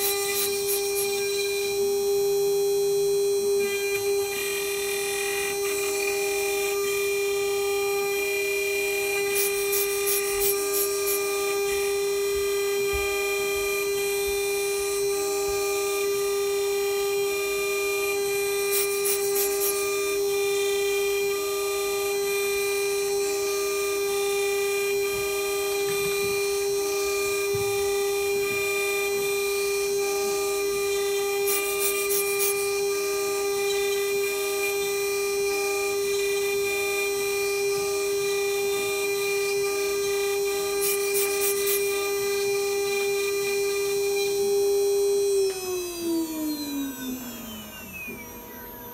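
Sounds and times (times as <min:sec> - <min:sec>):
high scratching of grinding bit: 0:00.0 - 0:02.0, 0:03.4 - 0:12.8, 0:28.3 - 0:44.4
rotary grinder motor whine: 0:00.0 - 0:48.9.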